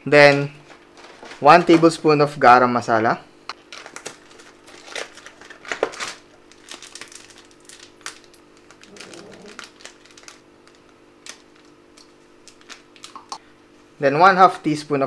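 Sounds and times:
foil sachet crinkling: 0.6s - 2.0s, 3.6s - 13.4s.

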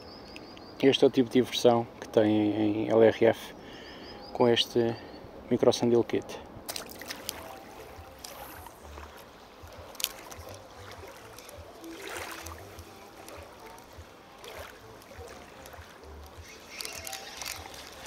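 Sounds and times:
water lapping at bank: 6.6s - 18.0s.

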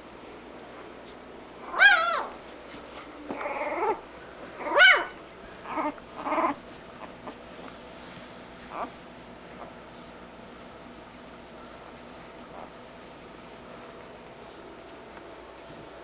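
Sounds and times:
puppies buzzy whines: 1.6s - 10.2s
puppies squealing cries: 1.7s - 2.4s, 4.6s - 6.6s.

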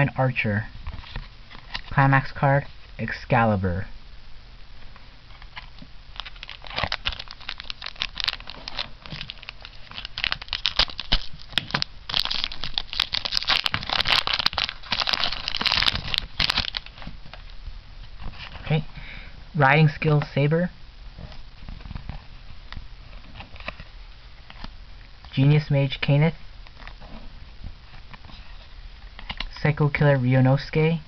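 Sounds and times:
foil wrapper tearing and crinkling: 5.5s - 17.5s.

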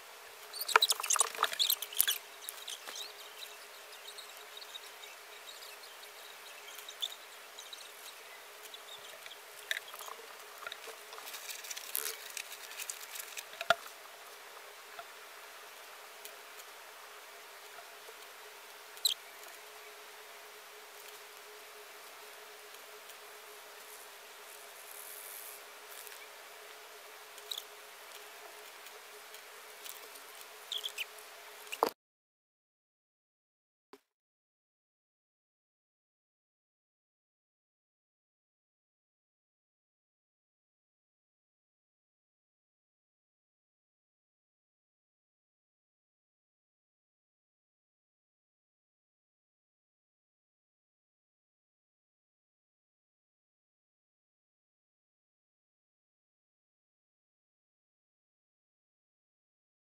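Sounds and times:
steady hiss: 0.0s - 31.9s.

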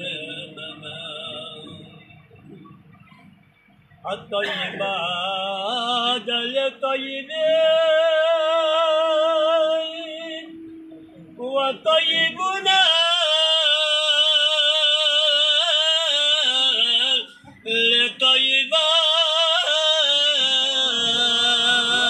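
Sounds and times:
man singing devotional chant: 0.0s - 1.9s, 4.0s - 10.6s, 11.4s - 22.0s.

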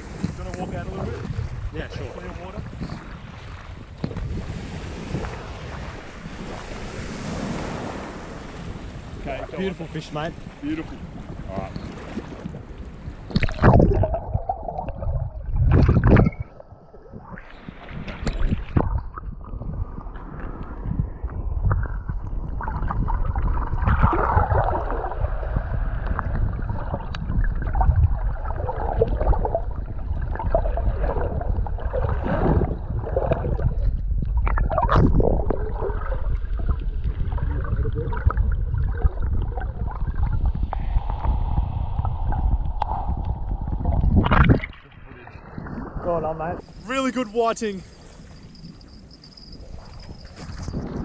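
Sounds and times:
muffled water sloshing underwater: 0.0s - 51.0s
steady low rumble: 18.7s - 46.9s.

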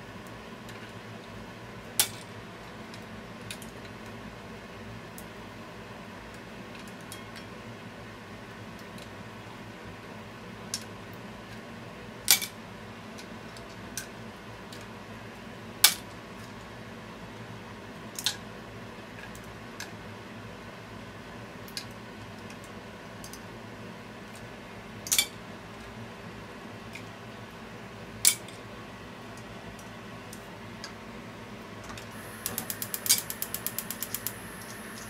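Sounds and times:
broth bubbling and hissing: 32.1s - 35.0s.

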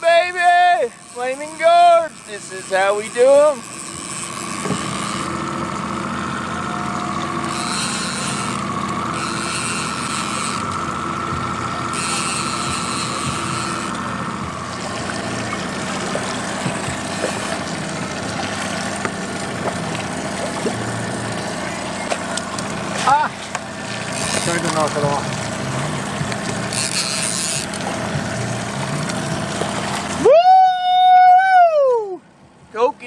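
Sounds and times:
fishing reel cranking: 0.0s - 30.2s
wavering whine: 0.0s - 31.6s
outboard motor running: 0.0s - 33.0s.

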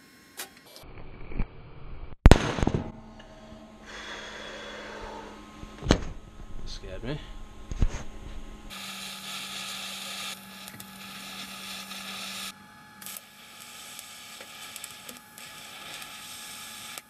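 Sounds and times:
low hum: 0.0s - 15.7s
welding arc hissing: 8.7s - 17.0s.

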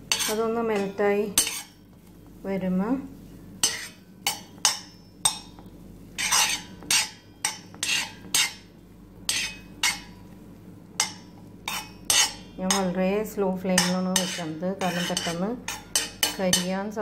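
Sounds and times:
spoon scraping steel pan: 0.1s - 1.8s, 3.6s - 5.4s, 6.2s - 8.7s, 9.3s - 10.2s, 11.0s - 13.0s, 13.7s - 16.8s.

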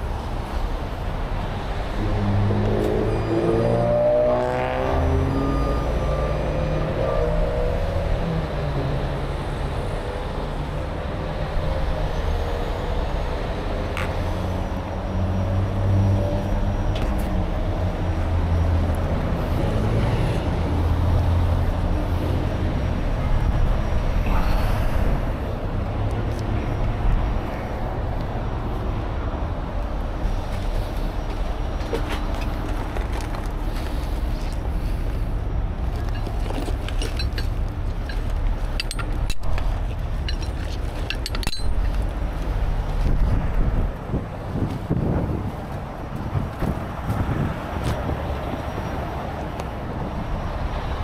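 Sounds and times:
freeway traffic noise: 0.0s - 51.0s
truck engine hum: 0.0s - 51.0s
metal chain clinks: 36.1s - 39.5s, 40.2s - 42.0s.

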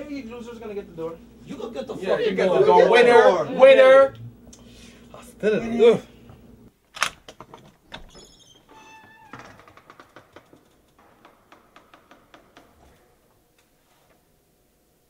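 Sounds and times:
door hinges creaking: 7.0s - 13.3s.

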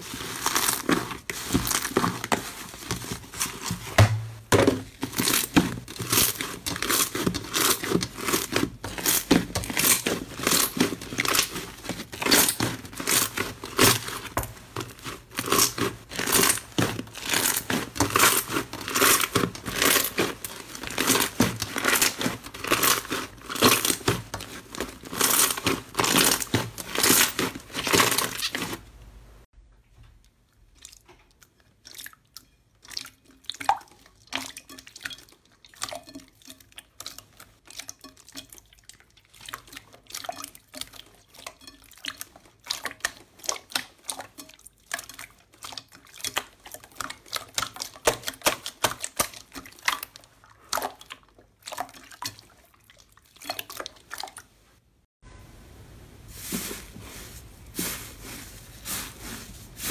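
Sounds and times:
sticky slime crackling and popping: 0.0s - 28.8s
soft slime squelches: 0.0s - 59.9s.

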